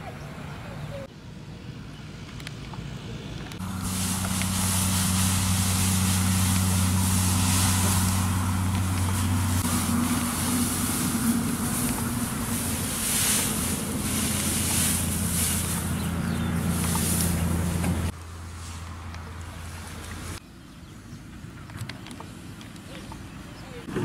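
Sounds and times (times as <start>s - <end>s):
small engine humming: 2.7s - 18.2s
steady high hiss: 3.0s - 16.0s.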